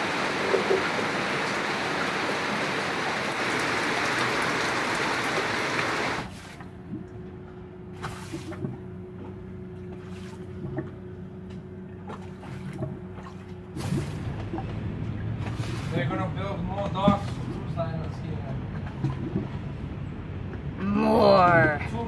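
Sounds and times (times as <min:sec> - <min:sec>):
rain on a window: 0:00.0 - 0:06.4
low steady hum: 0:06.2 - 0:22.0.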